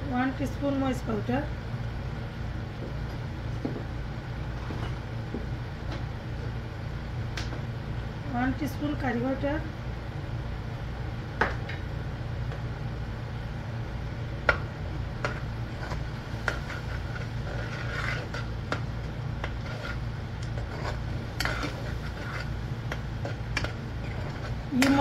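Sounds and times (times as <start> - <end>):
low steady hum: 0.0 - 25.0
metal spoon scraping pot: 15.7 - 18.6, 19.4 - 22.6.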